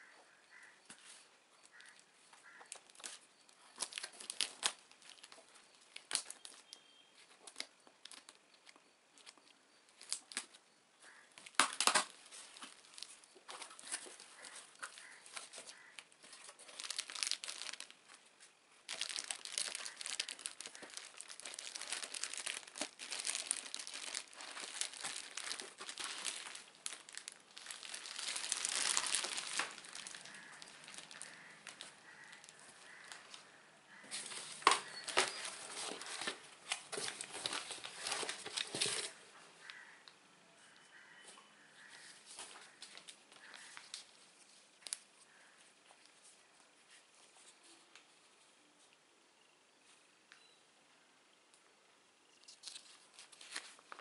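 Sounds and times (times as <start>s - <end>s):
plastic bag crinkling: 1.8s - 6.8s, 11.4s - 18.2s, 18.9s - 33.4s, 34.2s - 39.8s.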